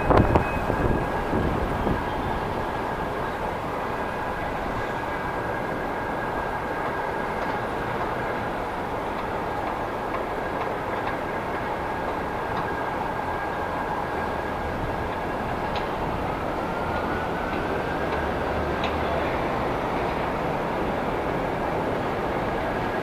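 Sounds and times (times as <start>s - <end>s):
rising whine: 0.0s - 8.6s
steady high whine: 0.0s - 23.0s
subway train rumbling on elevated track: 0.0s - 23.0s
wheel clicks over rail joints: 6.7s - 19.2s.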